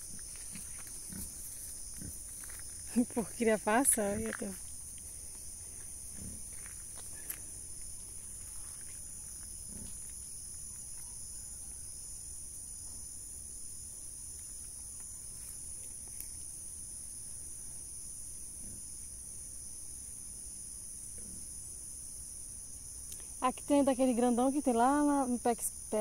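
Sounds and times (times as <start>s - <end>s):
insects shrilling: 0.0s - 12.7s.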